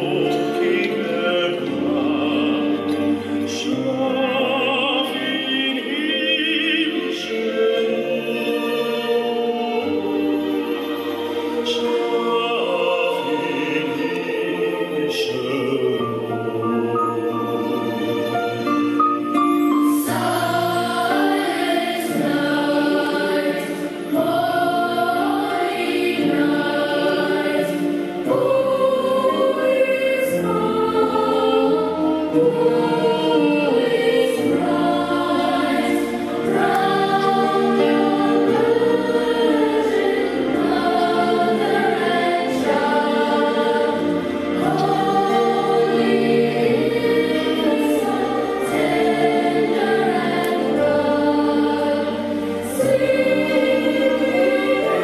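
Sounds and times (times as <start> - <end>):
choir singing: 0.0 - 55.0.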